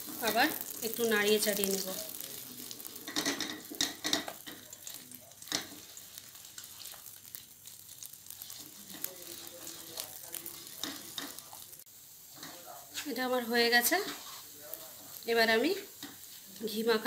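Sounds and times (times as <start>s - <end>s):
faint sizzle of ghee: 0.0s - 17.0s
wooden spatula scraping pan: 13.8s - 14.6s.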